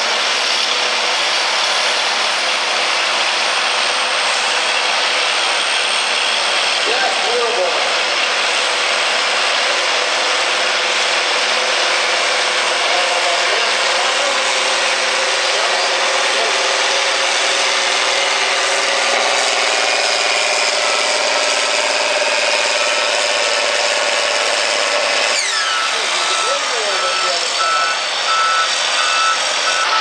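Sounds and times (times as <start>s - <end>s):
diesel engine droning under load: 0.0s - 30.0s.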